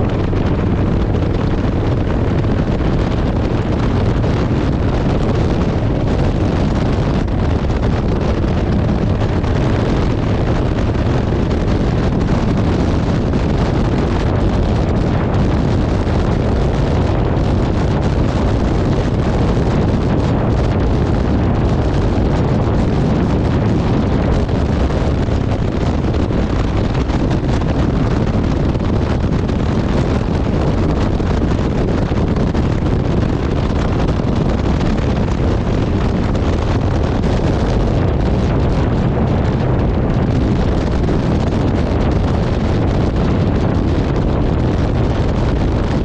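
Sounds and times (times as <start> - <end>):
wind rush on microphone: 0.0 - 46.0.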